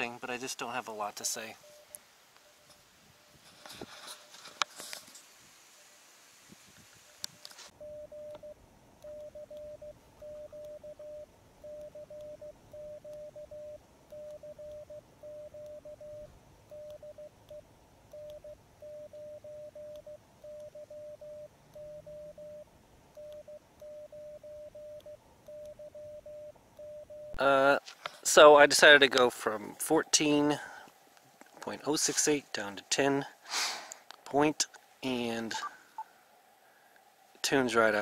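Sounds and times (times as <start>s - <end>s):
morse code beeps: 1.6s - 2.0s, 7.8s - 27.4s.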